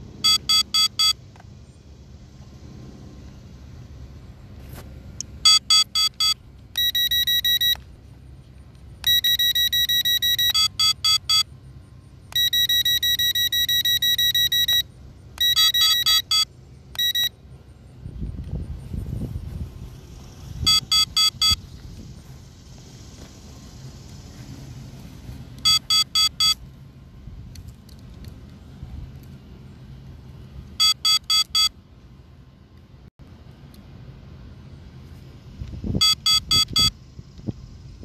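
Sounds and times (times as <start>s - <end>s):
electronic warning beeps: 0.2s - 1.2s, 5.4s - 7.8s, 9.0s - 11.6s, 12.3s - 17.4s, 20.6s - 21.7s, 25.6s - 26.6s, 30.8s - 31.8s, 36.0s - 37.0s.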